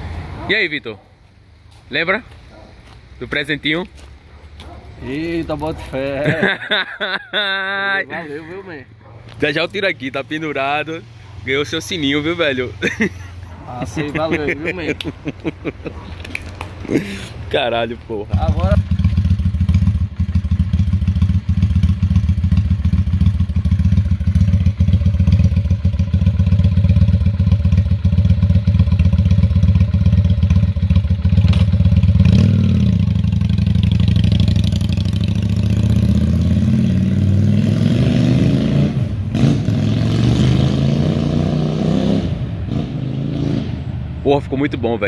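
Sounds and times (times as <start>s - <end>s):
motorcycle engine revving: 18.3s - 44.2s.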